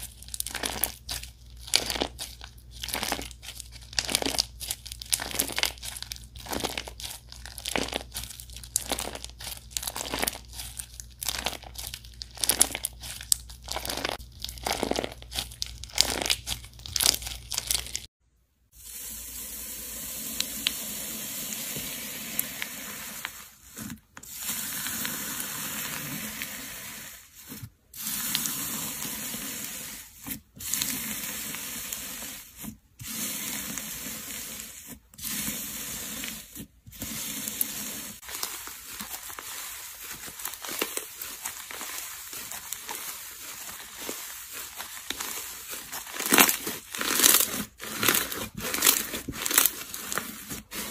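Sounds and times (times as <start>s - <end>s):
bead slime hissing crackle: 0.0s - 18.1s, 37.2s - 50.9s
crunchy slime crackling: 0.0s - 18.1s, 38.1s - 50.9s.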